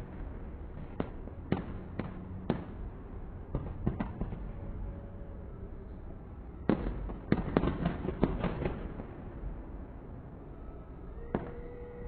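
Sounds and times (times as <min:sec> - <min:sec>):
fireworks bangs and cracks: 0:00.0 - 0:02.9, 0:03.5 - 0:04.6, 0:06.6 - 0:09.2.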